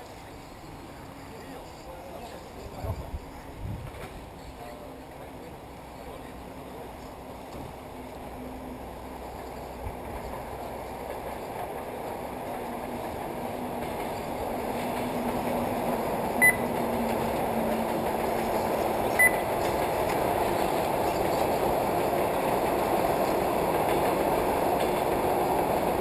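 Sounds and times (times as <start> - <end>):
short electronic beeps: 16.4 - 16.7, 19.2 - 19.5.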